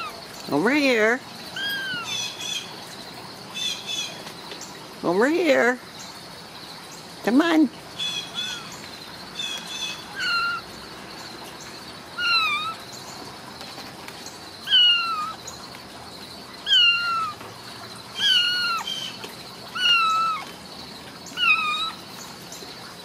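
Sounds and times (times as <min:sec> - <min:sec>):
kitten meowing: 0:01.6 - 0:02.2, 0:10.1 - 0:10.6, 0:12.2 - 0:12.8, 0:14.7 - 0:15.4, 0:16.6 - 0:17.4, 0:18.2 - 0:19.1, 0:19.7 - 0:20.5, 0:21.4 - 0:22.0.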